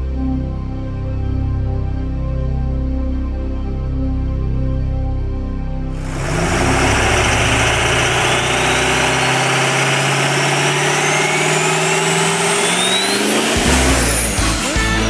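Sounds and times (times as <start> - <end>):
vehicle engine revving: 6.0 - 15.0.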